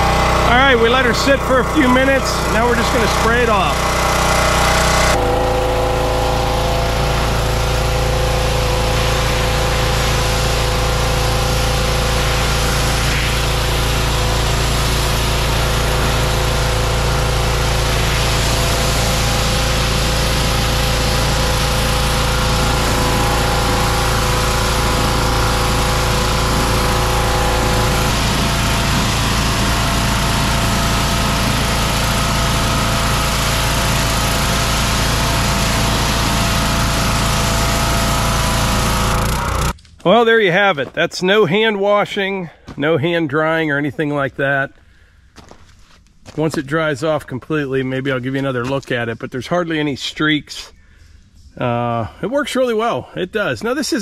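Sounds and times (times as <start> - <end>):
pressure washer running: 0.0 - 39.8
water jet hissing: 0.0 - 39.8.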